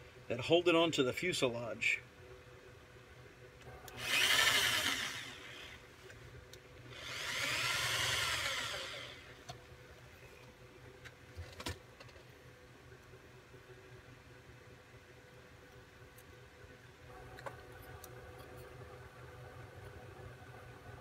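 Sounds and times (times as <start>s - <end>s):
electric drill boring aluminum: 3.9s - 5.8s, 6.9s - 9.4s.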